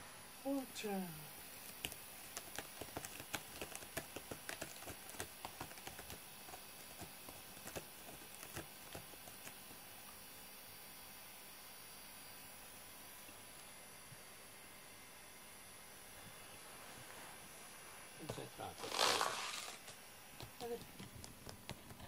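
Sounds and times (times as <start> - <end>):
cat scratching cardboard: 1.5 - 9.9.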